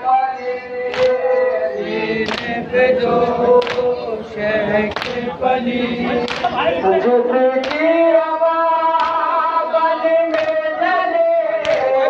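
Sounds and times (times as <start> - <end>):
men chanting in unison: 0.0 - 12.0
hands slapping chests: 0.9 - 1.2, 2.2 - 2.6, 3.6 - 3.9, 4.9 - 5.2, 6.2 - 6.6, 7.6 - 7.9, 9.0 - 9.2, 10.3 - 10.6, 11.6 - 12.0.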